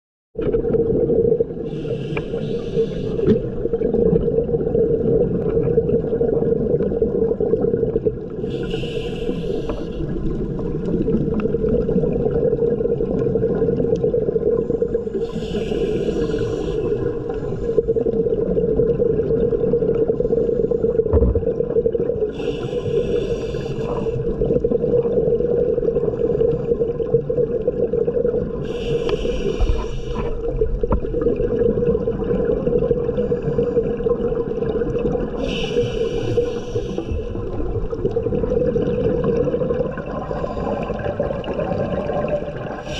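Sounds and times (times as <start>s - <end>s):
steady low underwater hum: 0.4s - 42.9s
regulator exhaust bubbles: 21.0s - 22.2s.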